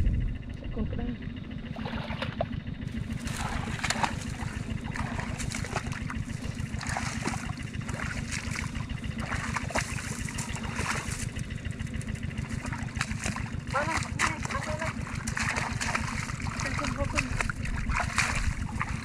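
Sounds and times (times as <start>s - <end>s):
steady low rumble: 0.0s - 19.0s
water splashing and trickling: 1.7s - 19.0s.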